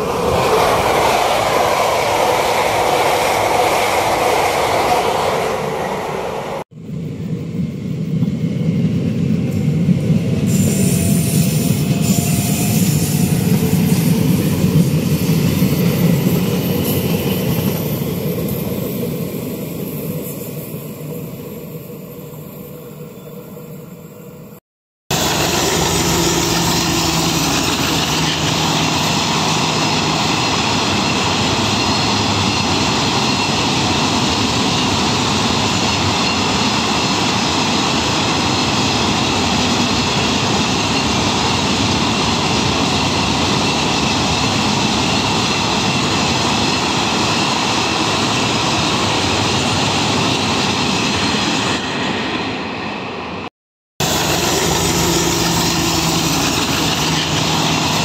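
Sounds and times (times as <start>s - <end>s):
diesel locomotive engine: 0.0s - 58.0s
steel wheels running on rails: 8.2s - 22.7s, 25.1s - 52.6s, 54.0s - 58.0s.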